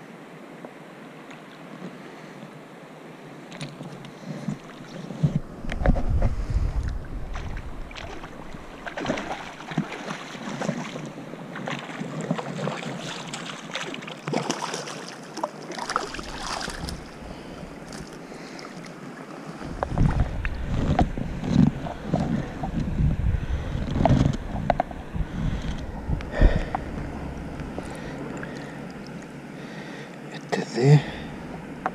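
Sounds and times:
river water lapping and splashing: 0:00.0 - 0:31.9
camera handling rumble: 0:03.5 - 0:07.8, 0:19.6 - 0:29.3.

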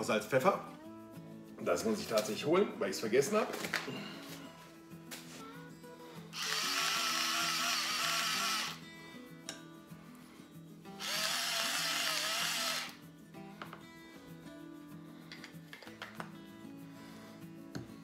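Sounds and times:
faint background music: 0:00.0 - 0:18.0
electric spice mill grinding: 0:06.4 - 0:08.8, 0:11.0 - 0:13.0.

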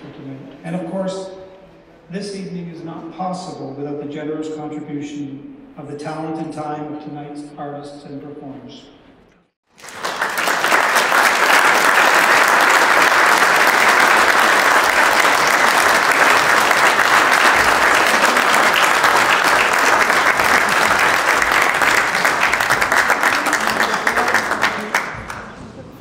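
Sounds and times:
audience applauding: 0:09.7 - 0:25.6.

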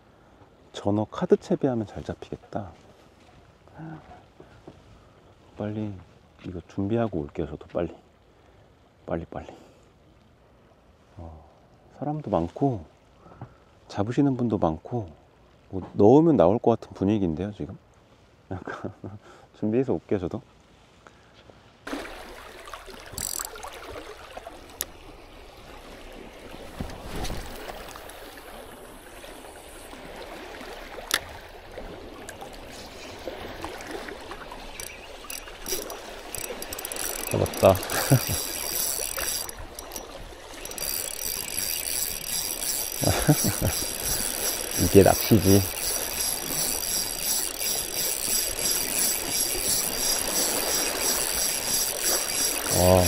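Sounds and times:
seawater lapping among stones: 0:21.6 - 0:53.0
fishing reel whirring: 0:23.0 - 0:23.8, 0:27.6 - 0:30.0, 0:34.3 - 0:53.0.

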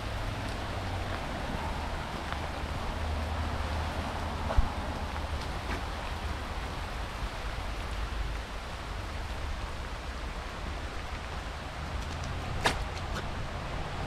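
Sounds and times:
wind rumble on microphone: 0:00.0 - 0:14.0.

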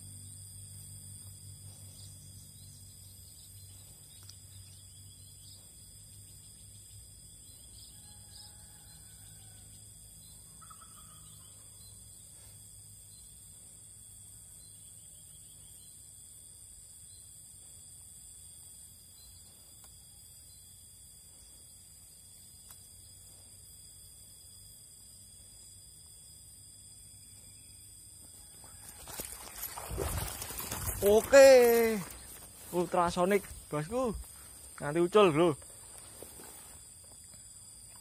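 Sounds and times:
insects droning: 0:00.0 - 0:38.0.

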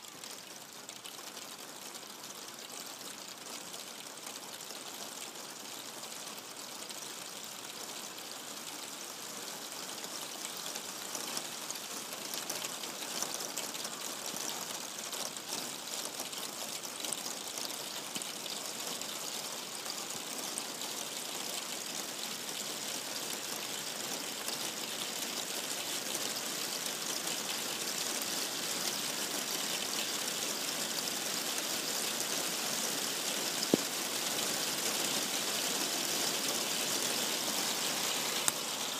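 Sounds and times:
heavy rain hissing: 0:21.8 - 0:38.9.

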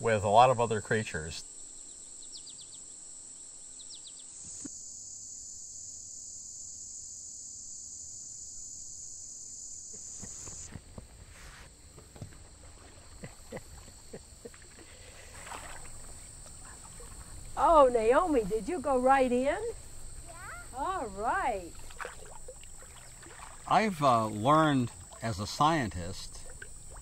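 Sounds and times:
high-pitched insect chorus: 0:00.0 - 0:27.0
water splashing and dripping: 0:12.2 - 0:17.6, 0:21.3 - 0:27.0.

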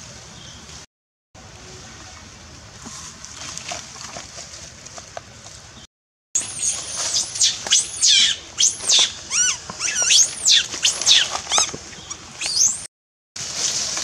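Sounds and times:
infant monkey screaming: 0:06.6 - 0:11.7.

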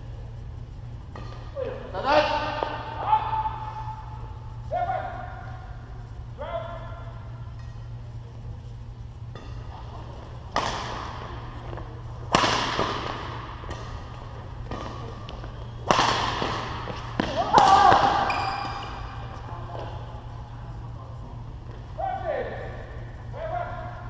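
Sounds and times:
steady low hum: 0:00.0 - 0:24.0
racket hitting shuttlecock: 0:01.1 - 0:01.6, 0:09.3 - 0:09.7, 0:10.4 - 0:19.8
shoe squeak: 0:18.3 - 0:19.0.

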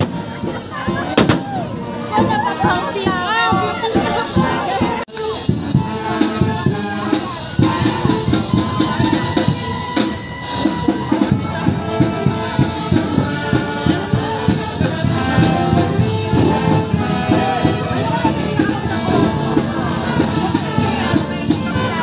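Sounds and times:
drums and rattling percussion: 0:00.0 - 0:22.0
marching band playing: 0:00.0 - 0:22.0.

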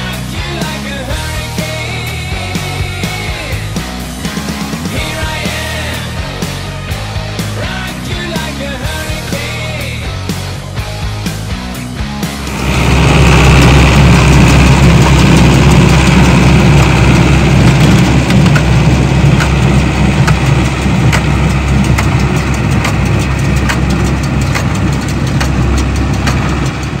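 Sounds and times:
tractor engine running: 0:00.0 - 0:27.0
baler mechanism knocking: 0:12.2 - 0:27.0.

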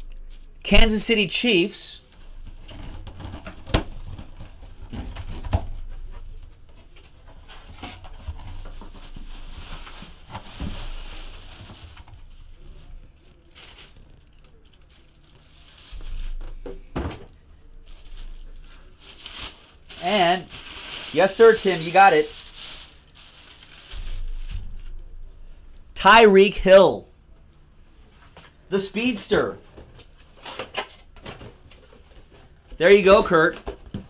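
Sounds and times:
plastic bag crinkling: 0:08.3 - 0:16.7, 0:17.7 - 0:25.3.

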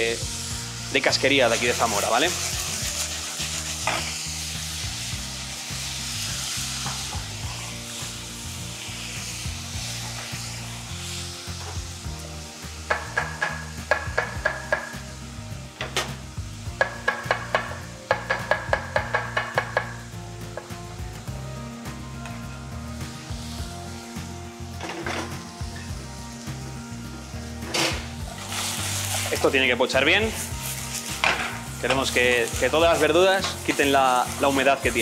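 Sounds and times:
vegetables sizzling in a saucepan: 0:00.0 - 0:35.0
knife tapping on cutting board: 0:16.8 - 0:20.0.

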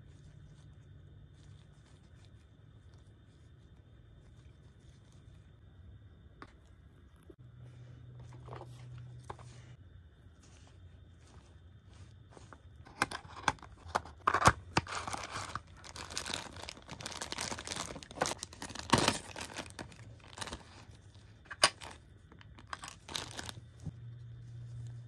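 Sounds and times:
plastic bag crinkling: 0:12.4 - 0:23.9.

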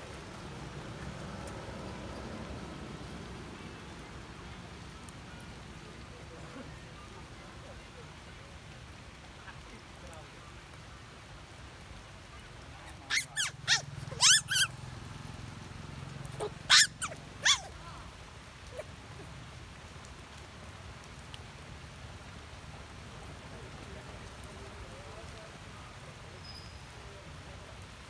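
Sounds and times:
high-pitched animal calls: 0:12.9 - 0:14.7, 0:16.3 - 0:17.8.

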